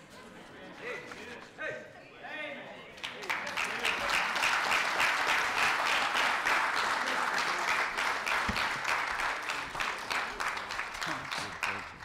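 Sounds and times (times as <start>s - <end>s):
congregation applauding: 3.0s - 12.0s.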